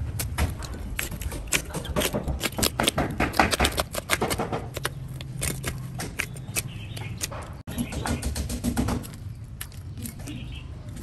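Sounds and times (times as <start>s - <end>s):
knife scraping along fish bones: 0.1s - 7.6s.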